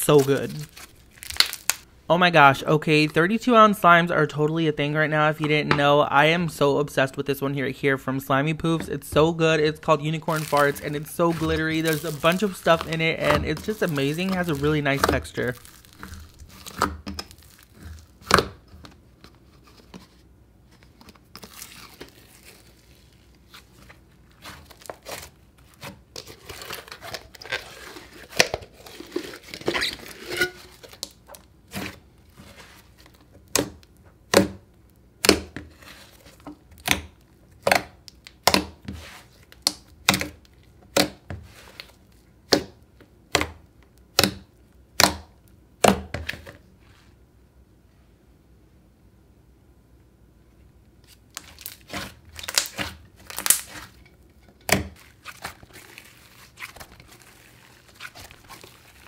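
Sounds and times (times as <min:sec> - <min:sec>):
hands squishing slime: 0:00.0 - 0:01.9, 0:10.2 - 0:18.7, 0:51.1 - 0:54.0, 0:54.6 - 0:59.0
slime popping: 0:00.3 - 0:01.8, 0:10.3 - 0:18.6, 0:51.4 - 0:53.9.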